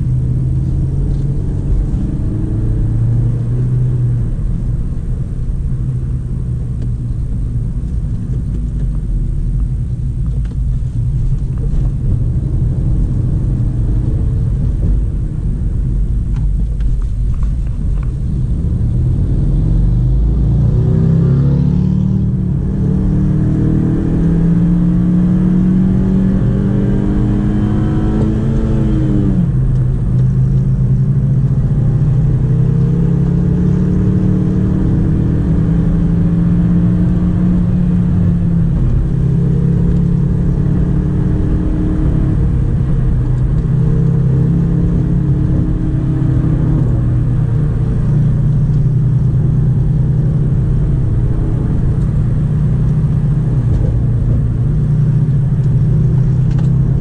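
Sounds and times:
car engine from inside cabin: 0:00.0 - 0:57.0
road rumble: 0:00.0 - 0:57.0.

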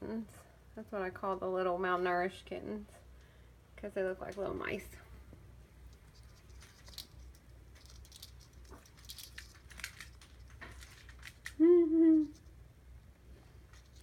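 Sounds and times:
person humming: 0:11.6 - 0:12.4.

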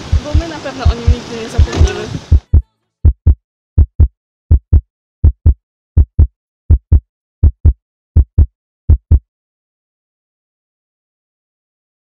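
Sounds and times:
heartbeat thumps: 0:00.0 - 0:09.2.

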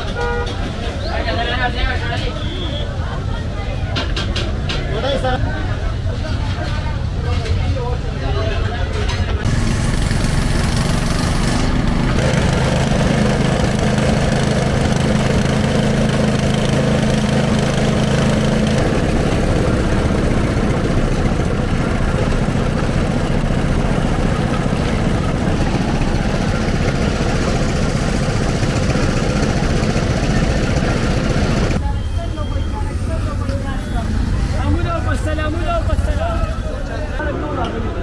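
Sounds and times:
steady noisy din: 0:00.0 - 0:38.0
engine idling: 0:09.4 - 0:31.8.

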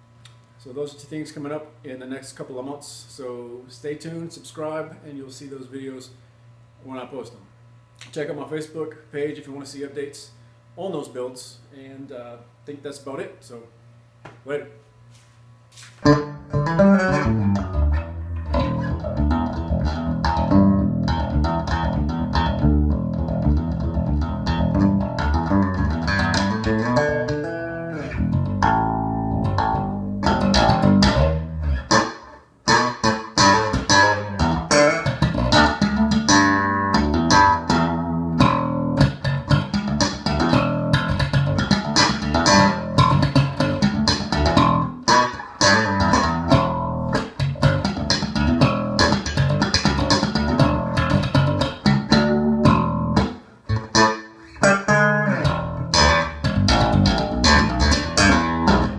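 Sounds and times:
electric bass plucked notes: 0:16.0 - 0:58.9.

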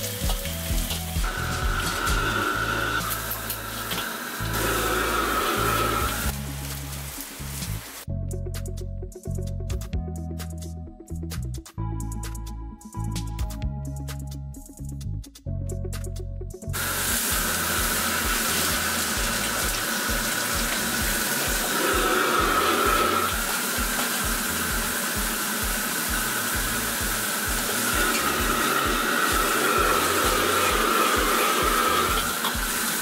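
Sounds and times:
water pouring from tap: 0:00.0 - 0:07.8, 0:16.8 - 0:33.0
gas burner roaring: 0:00.0 - 0:08.1, 0:16.8 - 0:33.0.

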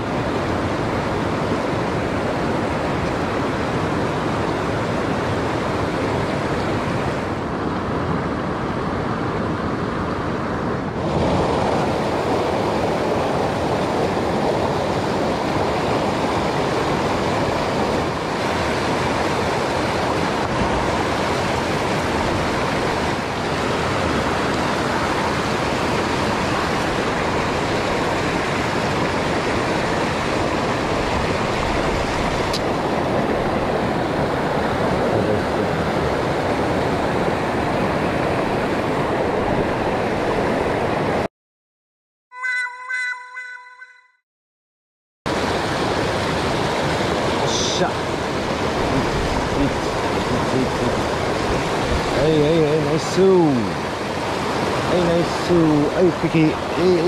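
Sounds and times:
river rapids rushing over stones: 0:11.0 - 0:40.8, 0:45.3 - 0:57.0.

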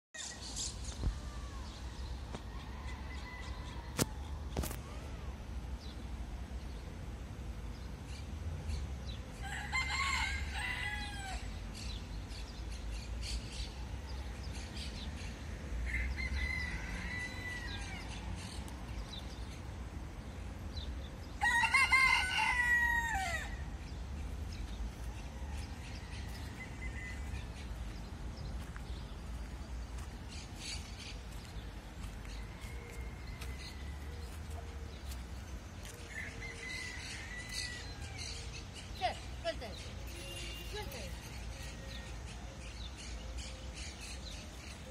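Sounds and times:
rooster crowing: 0:09.4 - 0:11.5, 0:15.9 - 0:18.1, 0:21.4 - 0:23.6, 0:36.1 - 0:38.3.

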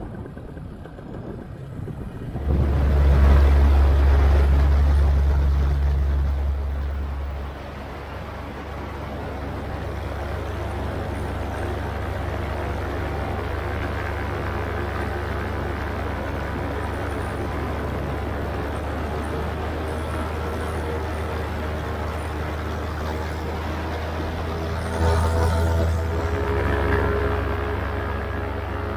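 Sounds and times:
paramotor engine droning: 0:00.0 - 0:28.9
rushing air: 0:01.2 - 0:20.4.

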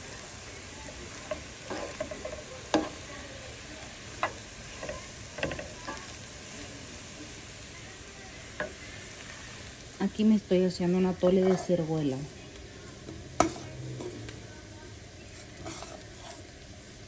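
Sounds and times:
food sizzling in a skillet: 0:00.0 - 0:17.0
spatula scraping and knocking pan: 0:00.9 - 0:03.2, 0:04.1 - 0:06.1, 0:11.2 - 0:12.0, 0:13.0 - 0:14.3, 0:15.3 - 0:16.5.

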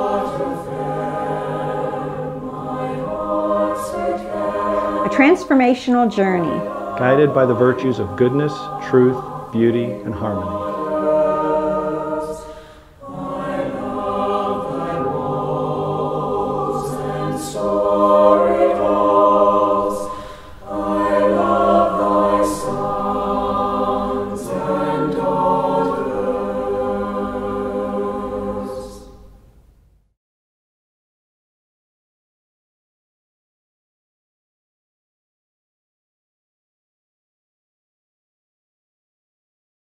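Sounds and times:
choir singing held chords: 0:00.0 - 0:29.6.

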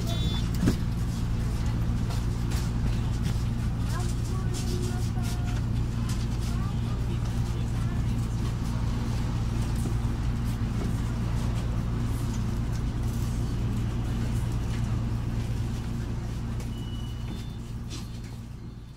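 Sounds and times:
brief high tone: 0:00.0 - 0:00.5
bus engine idling: 0:00.0 - 0:18.9.

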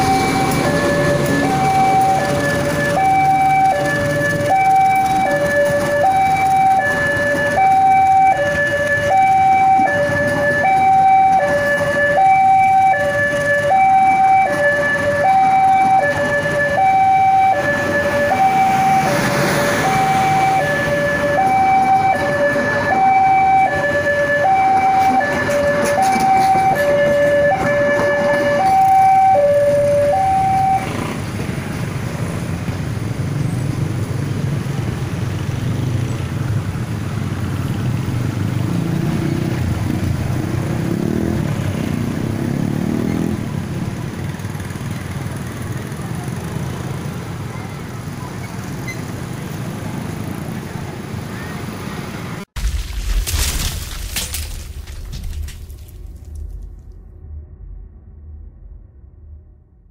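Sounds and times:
two-tone level crossing alarm: 0:00.0 - 0:31.0
train carriages rumbling past: 0:00.0 - 0:52.5.

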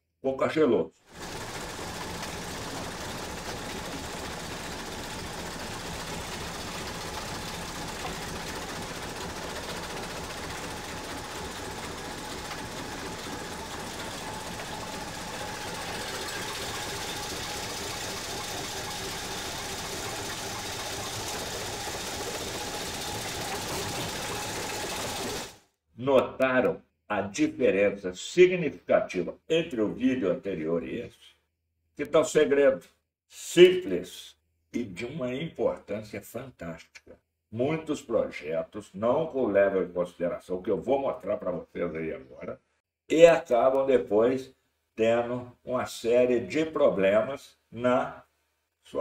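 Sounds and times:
rock crusher feeder running: 0:01.1 - 0:25.6.

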